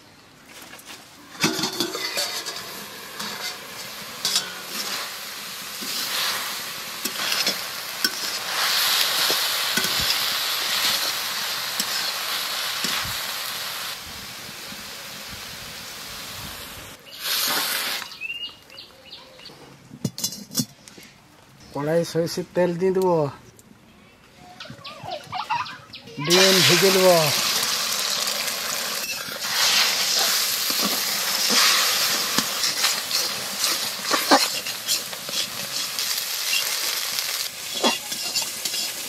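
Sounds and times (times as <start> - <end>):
metal spatula scraping a pan: 1.3 - 5.2, 5.8 - 8.5, 29.0 - 39.0
greens sizzling in a pan: 1.3 - 18.6, 26.2 - 39.0.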